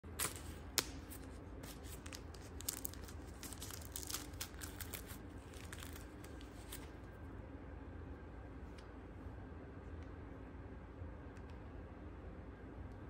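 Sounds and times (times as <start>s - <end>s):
wrapper crinkling and tearing: 0.1s - 7.0s.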